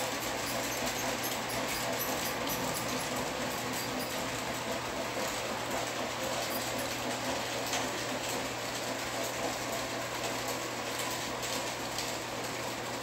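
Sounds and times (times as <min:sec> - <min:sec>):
model train motor whirring: 0:00.0 - 0:04.3.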